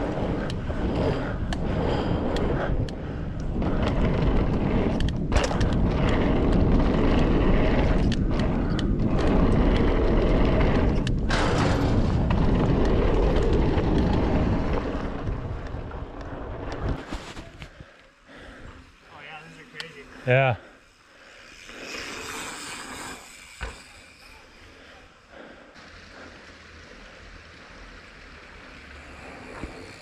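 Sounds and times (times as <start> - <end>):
bike tyres rumbling over steel grate: 0.0 - 17.0
wind buffeting microphone: 0.0 - 17.1.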